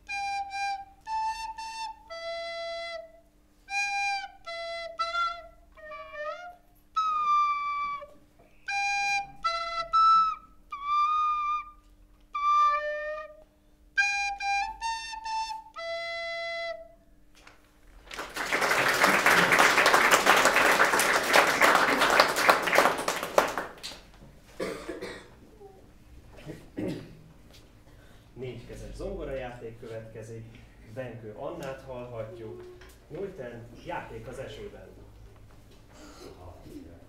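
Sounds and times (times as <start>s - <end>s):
recorder playing a tune: 0.0s - 17.2s
audience clapping: 17.9s - 24.2s.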